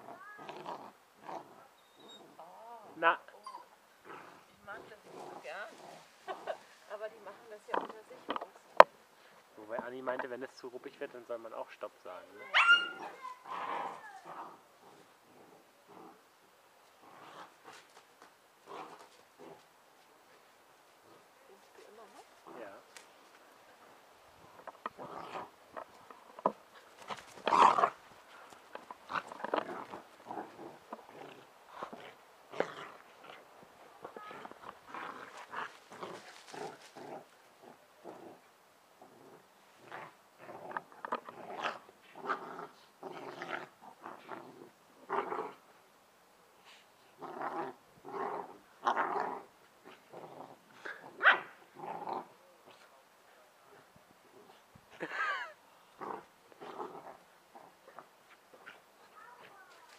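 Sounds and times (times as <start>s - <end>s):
puppies barking: 12.5s - 13.3s
puppies growling: 12.8s - 16.2s, 24.5s - 45.6s.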